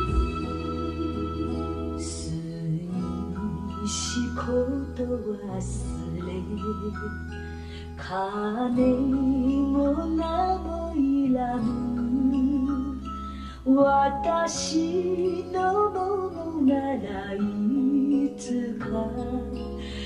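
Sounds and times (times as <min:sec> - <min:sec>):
instrumental accompaniment: 0:00.0 - 0:20.0
woman singing slow melody: 0:00.0 - 0:20.0.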